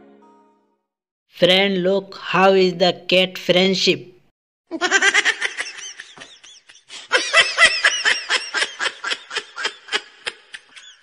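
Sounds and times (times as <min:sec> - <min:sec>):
person laughing: 0:04.7 - 0:11.0.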